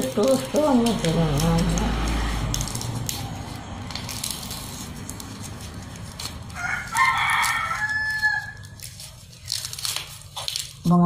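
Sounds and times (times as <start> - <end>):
palm leaves rustling: 0.0 - 11.0
rooster crowing: 6.4 - 9.0.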